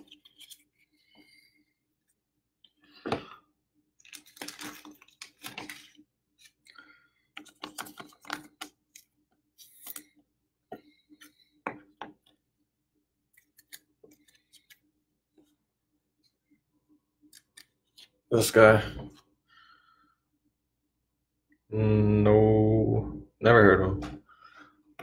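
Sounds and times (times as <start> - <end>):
trading cards being shuffled: 4.0 - 6.7, 7.4 - 10.1.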